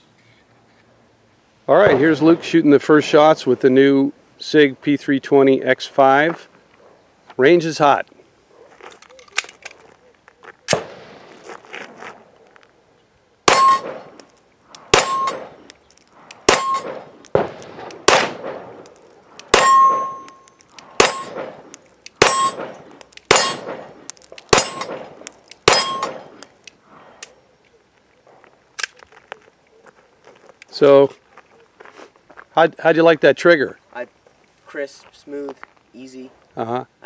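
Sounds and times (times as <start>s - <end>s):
pistol shots: 13.5s - 14.2s, 14.8s - 15.8s, 16.4s - 26.5s
steel target ringing: 13.5s - 14.3s, 14.9s - 26.6s.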